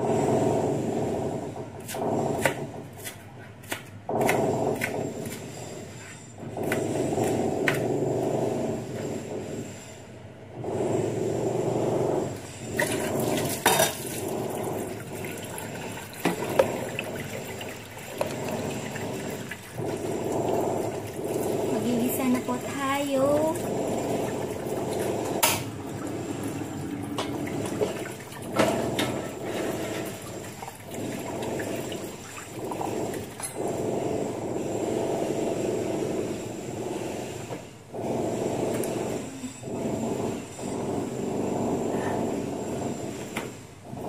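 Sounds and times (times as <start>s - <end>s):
knife chopping on plastic board: 1.8s - 5.4s.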